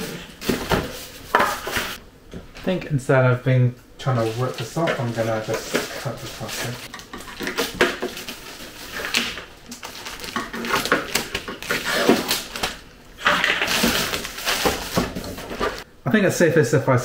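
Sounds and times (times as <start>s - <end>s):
plastic film crackling: 4.2s - 15.8s
scissors cutting plastic wrap: 4.9s - 12.8s, 13.6s - 15.8s.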